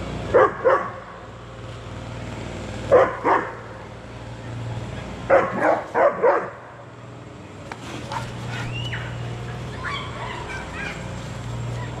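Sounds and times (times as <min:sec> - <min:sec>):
dog barking loudly: 0:00.3 - 0:01.0, 0:02.9 - 0:03.6, 0:05.3 - 0:06.7, 0:08.1 - 0:11.2
birds chirping: 0:08.1 - 0:12.0.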